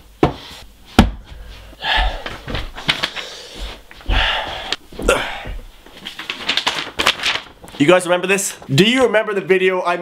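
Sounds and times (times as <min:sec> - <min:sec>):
man huffing and gasping: 0:01.4 - 0:02.6, 0:03.2 - 0:05.6.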